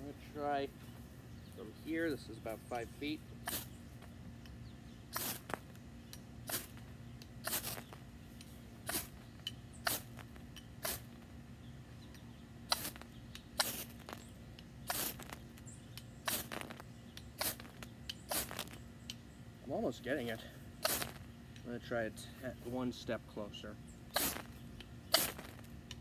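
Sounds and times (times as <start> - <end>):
knife scraping fire steel: 5.2 - 5.6, 7.4 - 8.0, 8.9 - 9.2, 13.6 - 14.2, 14.9 - 15.4, 17.4 - 18.8, 24.1 - 24.5, 25.1 - 25.6.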